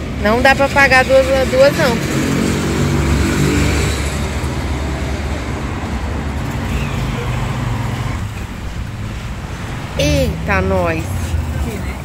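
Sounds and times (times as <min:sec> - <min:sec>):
road traffic noise: 0:00.0 - 0:12.0
vehicle engine running: 0:07.8 - 0:12.0.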